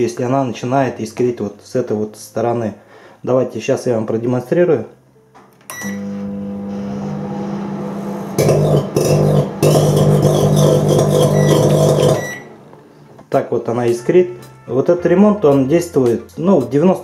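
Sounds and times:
microwave beeps: 5.7s - 12.6s
microwave humming: 5.7s - 12.9s
crackling buzz of arcing: 8.4s - 12.4s.

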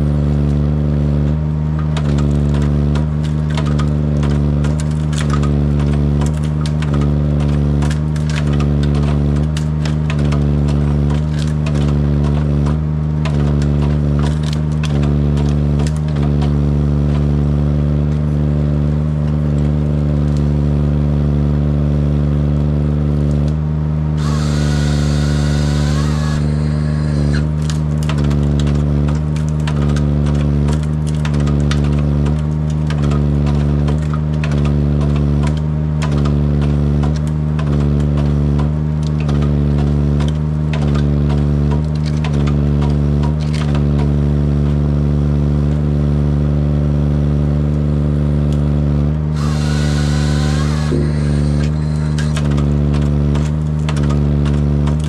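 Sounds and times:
diesel engine and hydraulics: 0.0s - 46.4s, 47.4s - 55.0s
wood cracking and snapping: 1.2s - 20.6s, 24.2s - 45.0s, 49.4s - 55.0s
hissing burst with whine: 24.2s - 27.5s, 49.4s - 52.5s.

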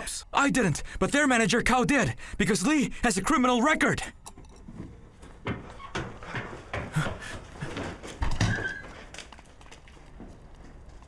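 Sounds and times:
hurried footsteps on hard floor: 4.7s - 11.0s.

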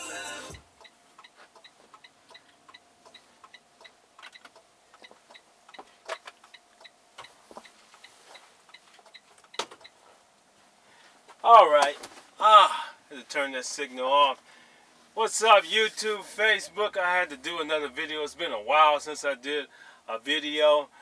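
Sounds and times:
turn signal ticking: 0.8s - 10.0s.

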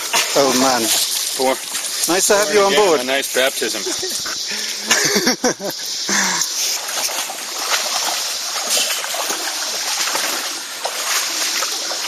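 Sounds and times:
people wading through water: 0.0s - 12.0s
running water rushing: 0.0s - 12.0s.

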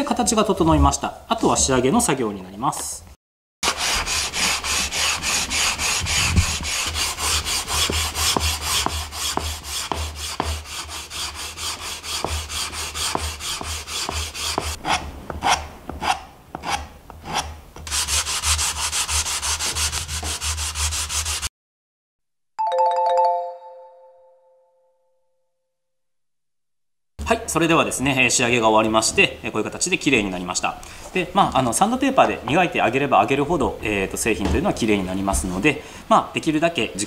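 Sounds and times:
sandpaper rubbing on wood: 3.6s - 21.5s.

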